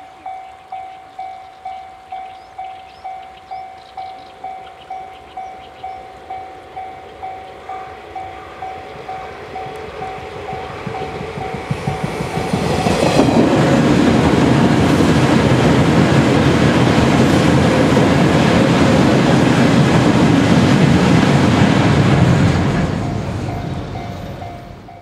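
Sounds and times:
train wheels clattering on rails: 8.2 - 25.0.

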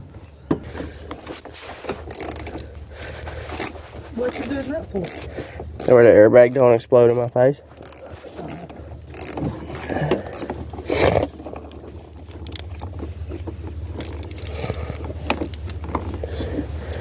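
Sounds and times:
wrench clinking on battery terminal: 2.1 - 2.7, 3.5 - 11.8, 14.0 - 15.8.

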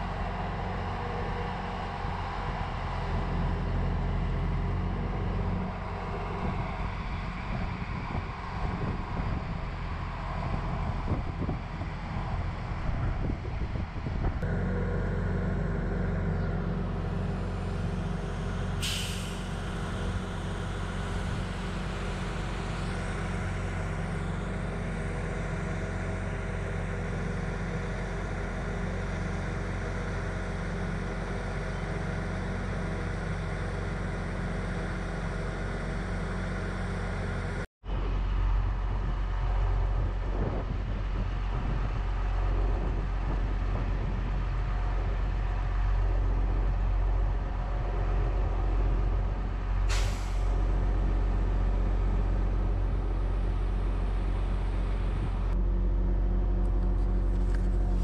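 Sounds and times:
truck engine humming: 0.0 - 58.0
short sharp hiss: 18.8 - 19.5, 49.9 - 50.5.

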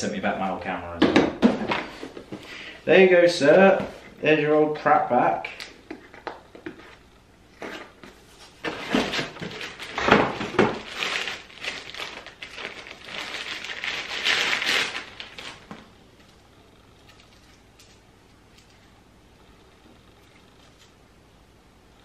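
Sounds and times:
plastic bag rustling: 7.6 - 16.0.

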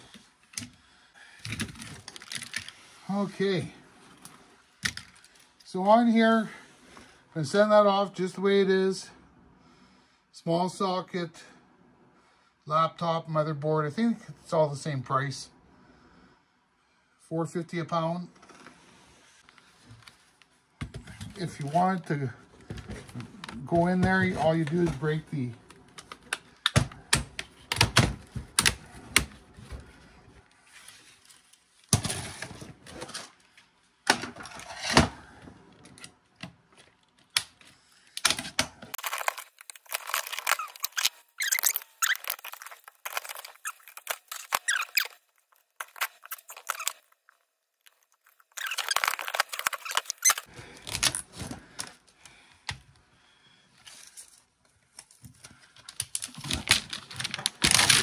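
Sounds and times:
plastic snapping and cracking: 36.0 - 45.2, 55.3 - 58.0
small parts rattling: 38.9 - 51.2.

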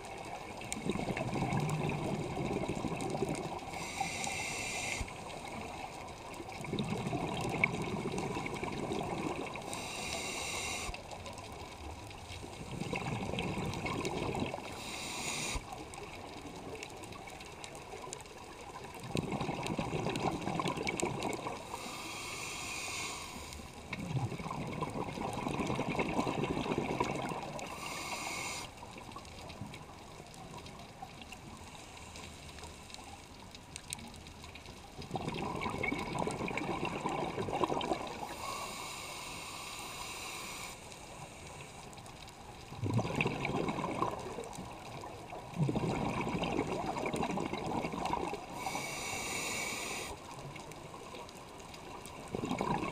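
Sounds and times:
exhaled bubbles gurgling underwater: 0.0 - 31.7, 33.7 - 52.9
regulator inhalation hiss: 3.7 - 5.3, 9.6 - 11.2, 14.7 - 15.8, 21.6 - 23.7, 27.6 - 28.8, 38.2 - 41.8, 48.5 - 50.3.

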